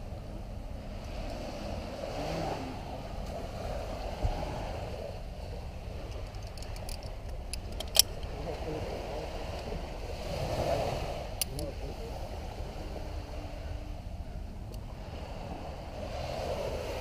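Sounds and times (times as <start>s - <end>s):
surf: 0.0s - 7.5s, 8.2s - 17.0s
wind: 0.0s - 17.0s
climbing gear clinking: 6.0s - 8.3s.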